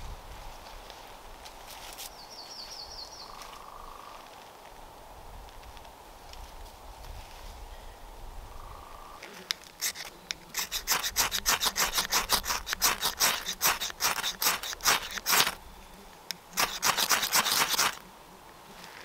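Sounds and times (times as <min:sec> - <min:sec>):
hand tool rasping on wood: 0:09.8 - 0:15.6, 0:16.6 - 0:18.0.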